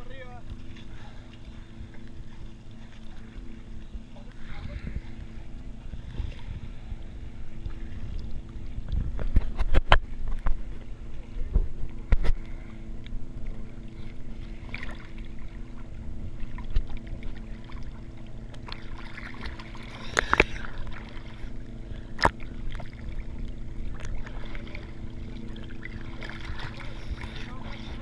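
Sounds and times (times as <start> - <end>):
boat engine hum: 0.0 - 28.0
water sloshing against camera: 0.0 - 28.0.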